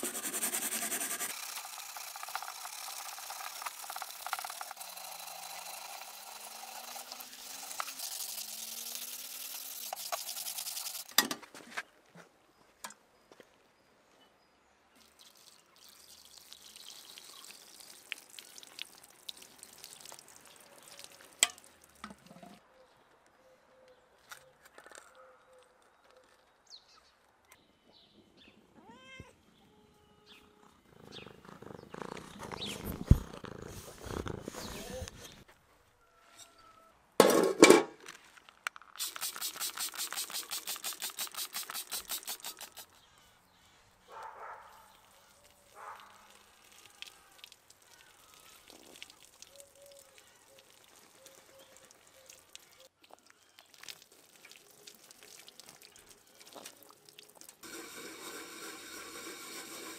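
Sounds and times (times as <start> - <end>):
steel wool scrubbing a pot: 0.0 - 11.1, 38.9 - 43.0, 57.6 - 59.9
water running over a pot: 0.9 - 11.1, 15.0 - 22.0, 38.9 - 42.9, 45.4 - 59.9.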